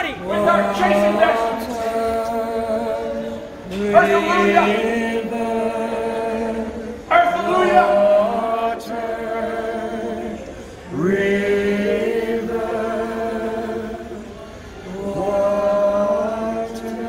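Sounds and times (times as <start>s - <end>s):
group of voices howling: 0.0s - 10.4s.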